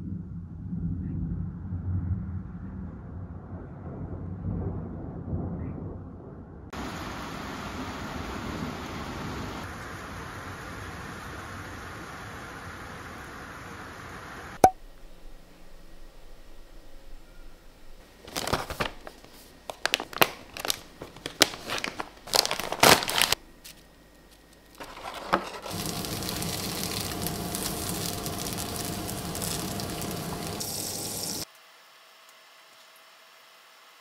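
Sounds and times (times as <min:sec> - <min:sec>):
paper packaging crinkling: 0:18.2 - 0:31.4
butter sizzling in frying pan: 0:24.8 - 0:31.5.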